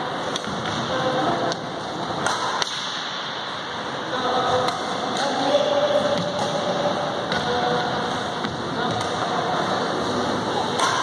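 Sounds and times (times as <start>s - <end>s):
rackets hitting shuttlecocks: 2.2s - 3.3s.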